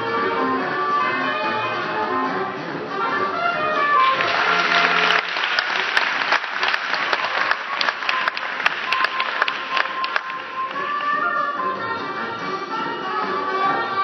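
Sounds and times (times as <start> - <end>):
music: 0.0 - 14.0
audience applauding: 4.0 - 11.6.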